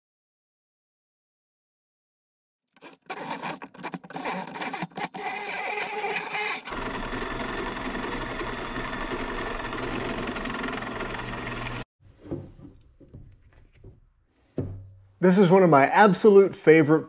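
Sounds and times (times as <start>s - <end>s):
drill press motor cutting: 2.8s - 11.9s
electric drill drilling metal: 2.8s - 11.9s.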